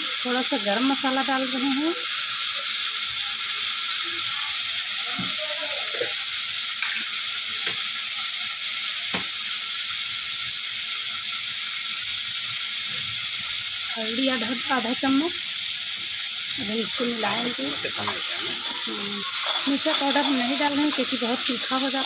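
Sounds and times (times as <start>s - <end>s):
onions sizzling in hot oil: 0.0s - 22.0s.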